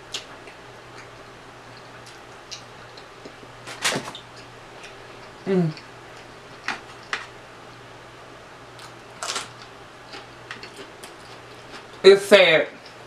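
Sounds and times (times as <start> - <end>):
person humming: 5.4 - 5.8.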